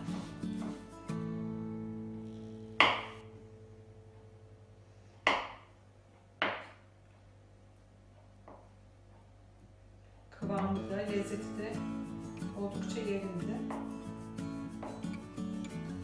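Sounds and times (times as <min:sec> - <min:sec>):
knife chopping on cutting board: 0:02.8 - 0:03.2.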